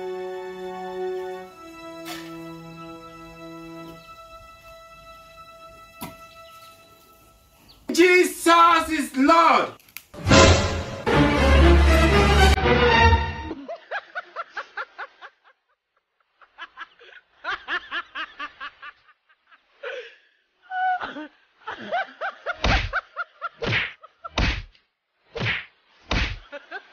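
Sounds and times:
person laughing: 0:20.7 - 0:23.6.

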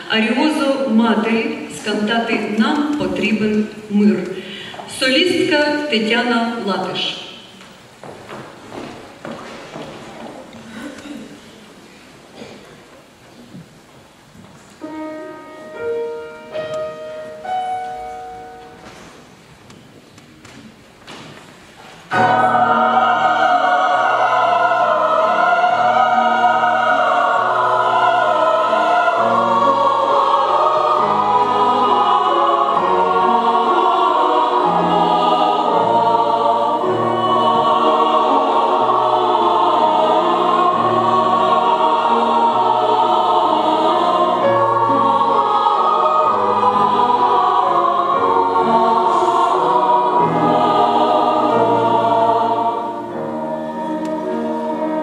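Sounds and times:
grand piano accompaniment: 0:00.0 - 0:55.0
mixed choir singing: 0:22.0 - 0:55.0.

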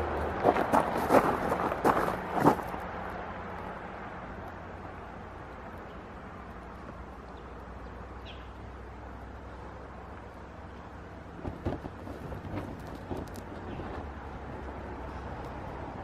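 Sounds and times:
faint bird chirp: 0:08.2 - 0:08.6.

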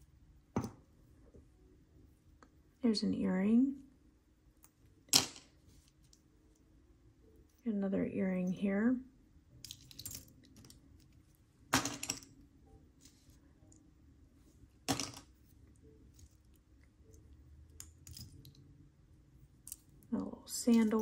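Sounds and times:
earrings clinking: 0:09.6 - 0:13.2, 0:14.8 - 0:18.8, 0:19.4 - 0:21.0.

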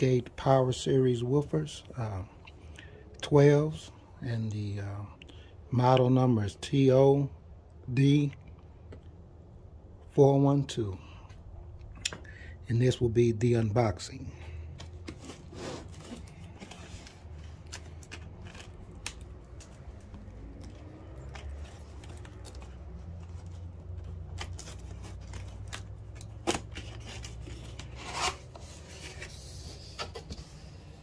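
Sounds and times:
tape tearing away: 0:23.3 - 0:28.6.

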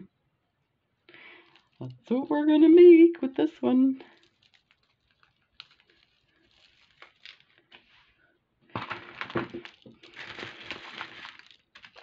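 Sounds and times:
plastic packaging crinkling: 0:01.1 - 0:02.2, 0:04.0 - 0:12.0
handling clicks and rustles: 0:01.4 - 0:02.1, 0:04.1 - 0:08.1.

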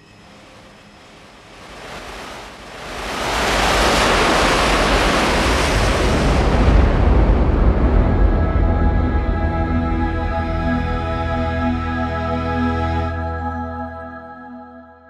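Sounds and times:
wind-like whoosh: 0:00.0 - 0:10.8
low rumble: 0:05.7 - 0:12.3.

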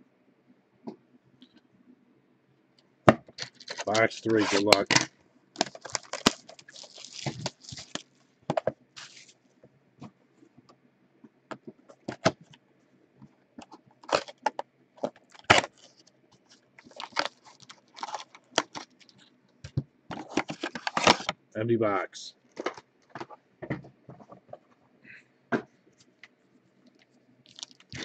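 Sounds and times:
foil card packs crinkling: 0:03.4 - 0:08.2, 0:09.0 - 0:09.4, 0:14.0 - 0:19.3, 0:20.1 - 0:21.3, 0:22.5 - 0:23.4, 0:27.4 - 0:28.0.

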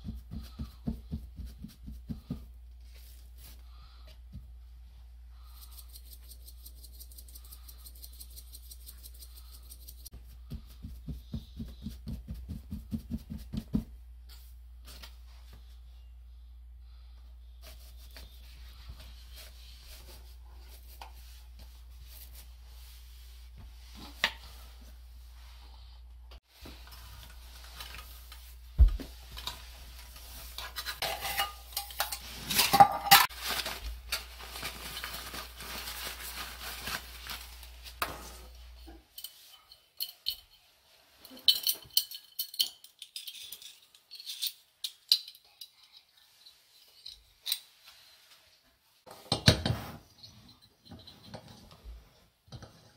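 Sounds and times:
metal cookware clattering: 0:30.6 - 0:33.3
metallic clicks and clinks: 0:39.2 - 0:47.7.

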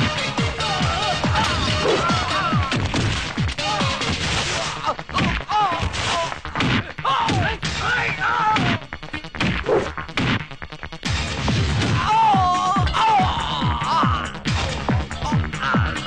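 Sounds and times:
men shouting: 0:00.5 - 0:02.8, 0:12.0 - 0:14.5.

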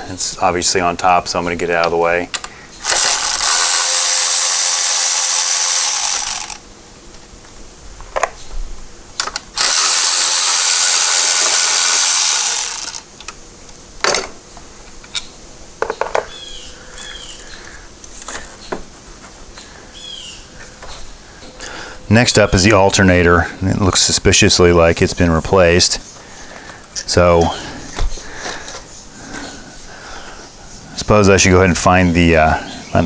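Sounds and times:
clicks and knocks of parts handled: 0:01.8 - 0:03.0, 0:09.2 - 0:09.5, 0:13.2 - 0:16.3
electric ratchet spinning bolts: 0:02.8 - 0:06.6, 0:09.5 - 0:13.1.

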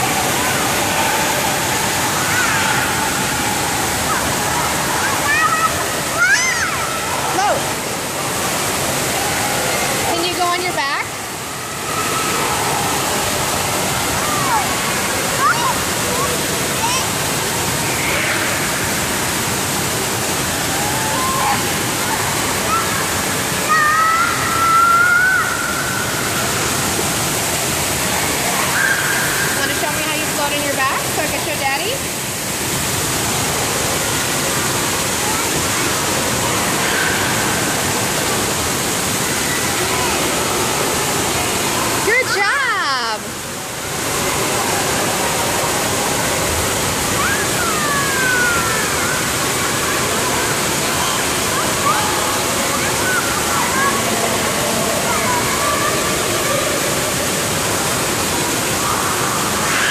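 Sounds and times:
fountain water splashing into pool: 0:00.0 - 0:59.9
faint children's calls: 0:47.1 - 0:57.1.

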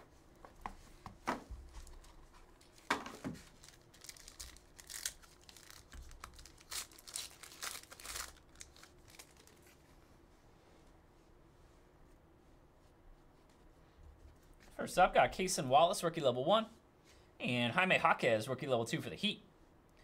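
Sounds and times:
foil wrapper tearing and crinkling: 0:02.6 - 0:09.8.

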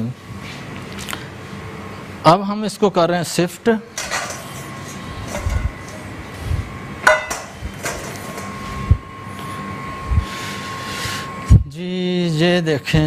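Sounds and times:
dull knocks of cookware: 0:07.0 - 0:08.5.

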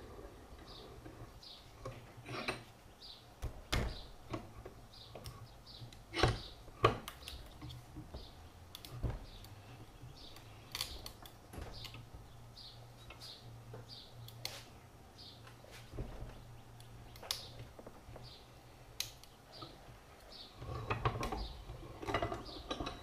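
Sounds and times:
bird chirping: 0:00.6 - 0:23.0.

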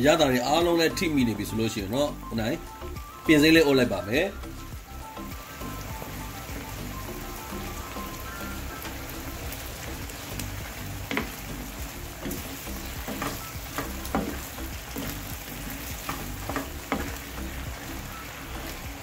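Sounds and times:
curry sizzling in a pan: 0:00.0 - 0:19.0
wooden spatula scraping a pan: 0:12.3 - 0:17.4.

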